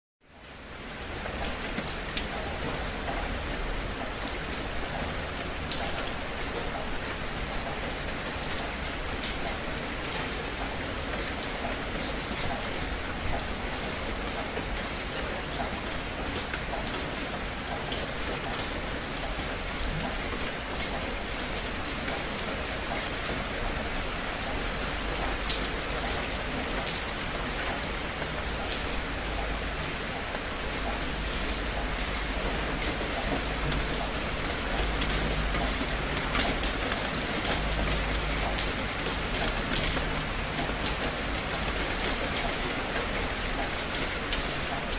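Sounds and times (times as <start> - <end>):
steady rain hiss: 0.4 - 44.9
rain drop ticks: 24.4 - 44.9.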